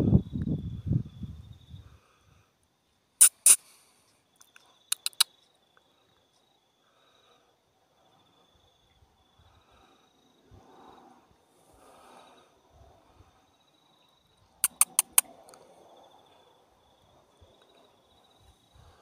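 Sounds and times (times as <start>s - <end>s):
faint high insect trill: 0.0s - 19.0s
loud sharp clicks: 3.2s - 3.8s, 4.9s - 5.2s, 14.6s - 15.3s.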